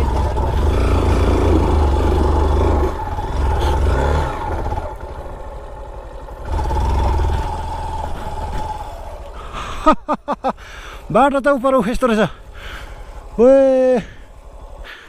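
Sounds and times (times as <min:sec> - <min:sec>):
motorcycle engine under load: 0:00.0 - 0:15.0.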